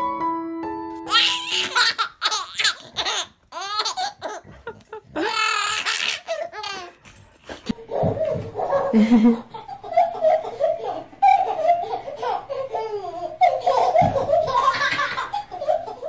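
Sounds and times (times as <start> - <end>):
piano music: 0.0 - 3.0
baby laughing: 1.0 - 7.0, 7.7 - 16.0.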